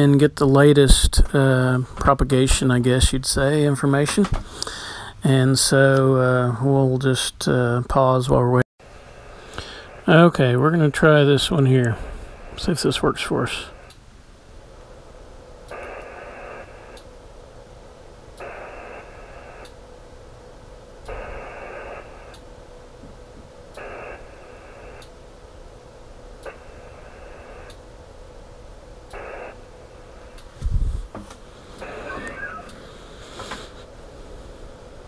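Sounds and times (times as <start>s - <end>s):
faint steady hiss: 0.0s - 35.0s
digital modem data bursts: 31.8s - 33.0s.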